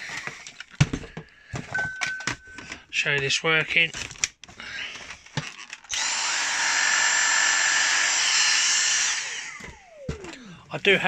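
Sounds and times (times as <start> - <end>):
vacuum motor whine: 5.9 - 10.3.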